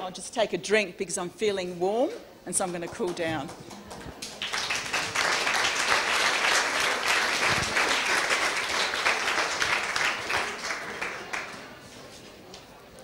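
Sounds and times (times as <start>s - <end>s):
audience applauding: 4.2s - 11.8s.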